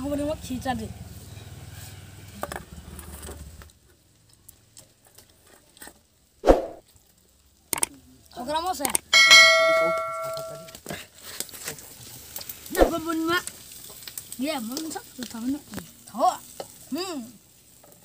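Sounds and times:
bell-like ding: 9.2s - 10.7s.

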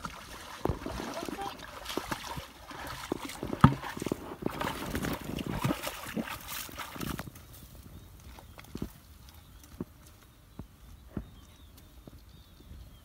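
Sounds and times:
water splashing: 0.0s - 7.3s
footsteps squelching through mud: 0.0s - 12.3s.

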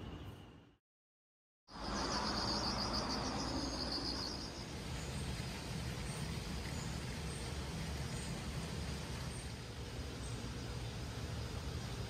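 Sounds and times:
high-pitched insect chirping: 1.8s - 4.6s.

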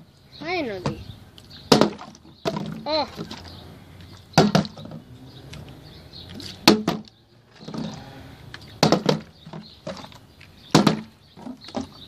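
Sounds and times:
plastic bottle landing on wooden deck: 1.7s - 2.8s, 4.4s - 5.0s, 6.6s - 8.0s, 8.8s - 10.1s, 10.7s - 12.0s.

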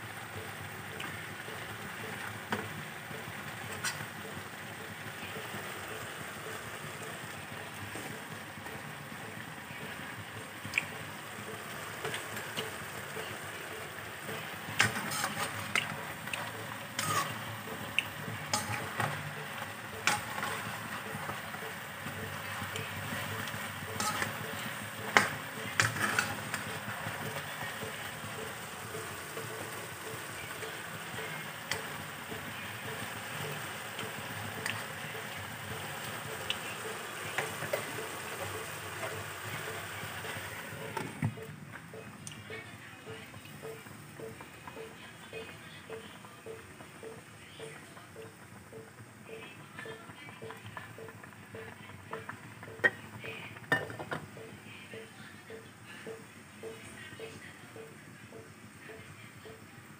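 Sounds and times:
meat sizzling in fat: 10.9s - 40.7s
spatula tapping and scraping pan: 14.7s - 30.8s.

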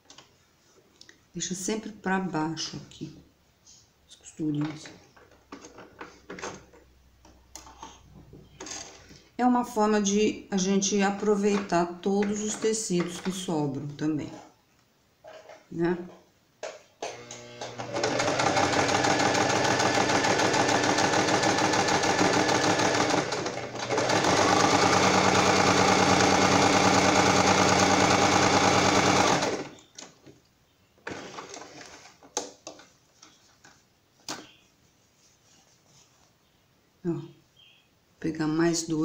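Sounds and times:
sewing machine stitching: 17.0s - 29.8s.

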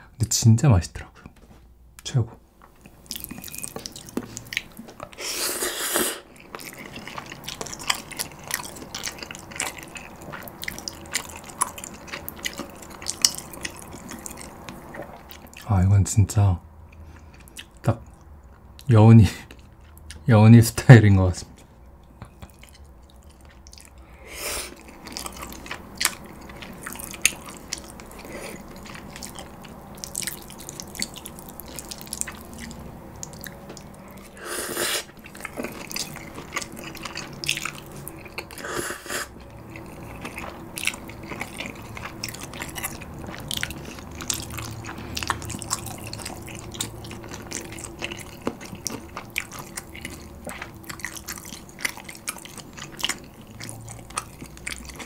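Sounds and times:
wet chewing with mouth clicks: 2.7s - 15.7s, 16.8s - 20.2s, 21.5s - 55.0s
noodle slurping: 5.1s - 15.0s, 34.1s - 37.2s.

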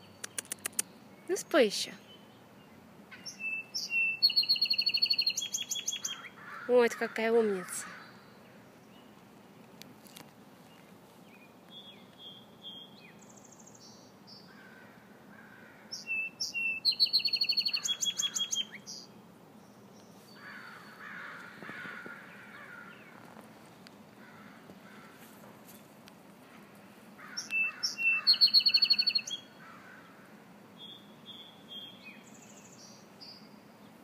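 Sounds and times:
songbird singing with trill: 0.0s - 6.4s, 10.1s - 14.6s, 15.9s - 20.2s, 27.3s - 29.6s, 30.8s - 34.0s.

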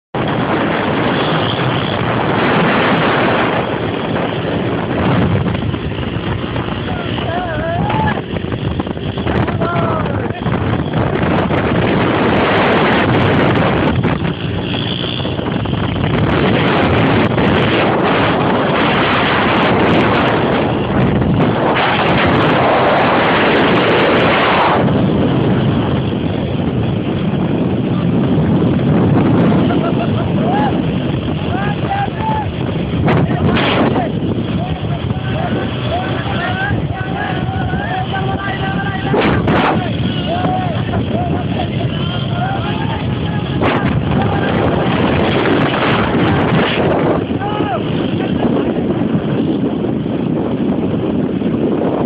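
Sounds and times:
wind noise on microphone: 0.0s - 52.0s
motorcycles running: 0.2s - 52.0s
small motorcycle engine running: 0.3s - 18.0s.

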